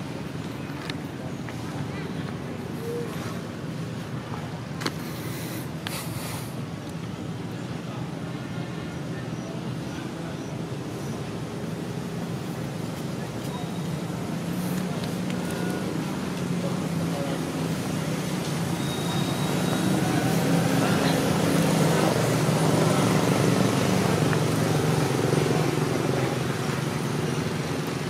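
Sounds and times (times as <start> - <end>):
vehicle engine running: 10.7 - 28.0.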